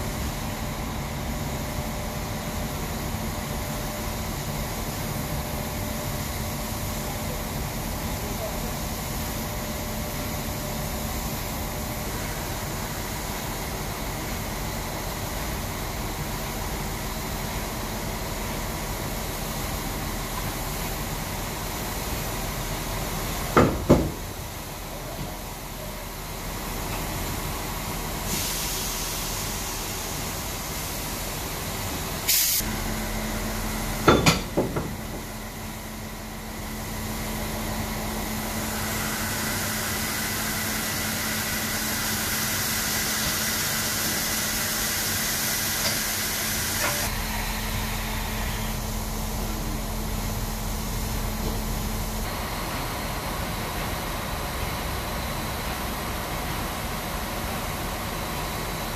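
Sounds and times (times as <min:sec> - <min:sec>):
steam hissing: 0:28.1 - 0:33.0, 0:37.0 - 0:49.4.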